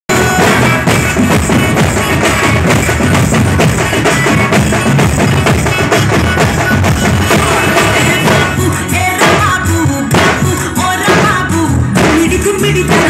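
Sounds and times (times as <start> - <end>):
deep bass drum beats: 0.1 - 13.0
side drums beating fast rhythm: 0.1 - 13.0.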